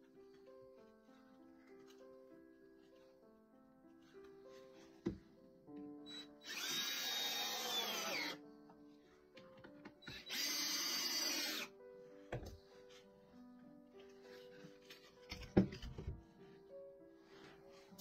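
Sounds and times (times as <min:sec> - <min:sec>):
background music: 0:00.0 - 0:18.0
cordless driver driving screws: 0:06.4 - 0:08.4, 0:10.1 - 0:11.7.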